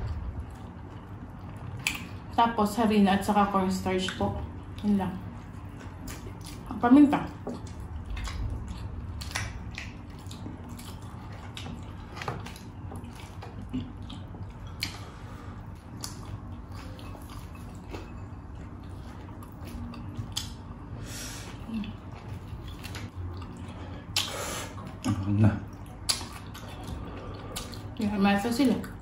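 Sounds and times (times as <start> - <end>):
people chewing and mouth smacks: 0.0 - 2.4, 4.0 - 29.0.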